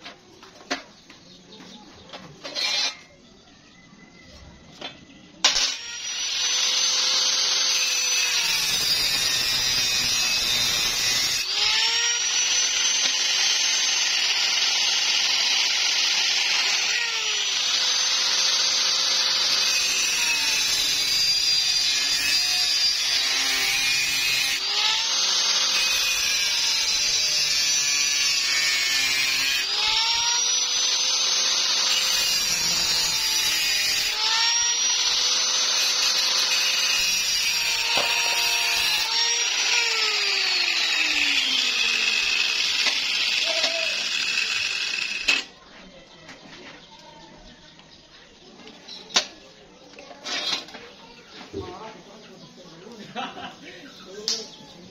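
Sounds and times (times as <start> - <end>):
angle grinder cutting steel: 2.4 - 3.2, 5.4 - 45.6.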